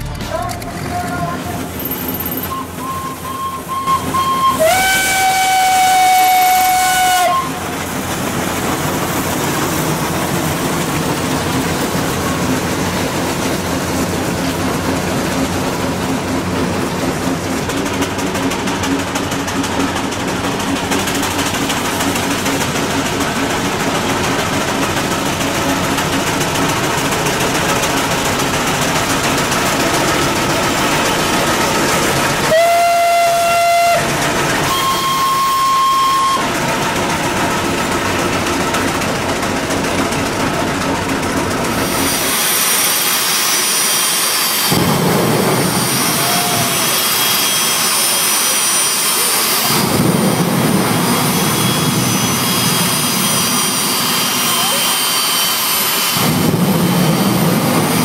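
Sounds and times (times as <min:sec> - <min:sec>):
steam locomotive running: 0:00.0 - 0:58.0
steam whistle blasts: 0:02.5 - 0:07.7, 0:32.4 - 0:36.6, 0:45.7 - 0:50.0
jet engine high whine: 0:06.9 - 0:58.0.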